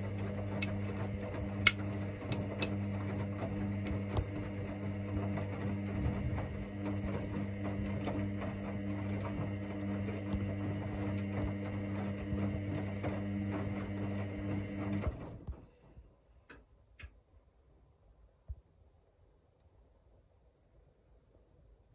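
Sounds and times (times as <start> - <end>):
laundry tumbling in drum: 0.0 - 16.0
washing machine motor humming: 0.0 - 16.0
faint click: 19.5 - 19.8.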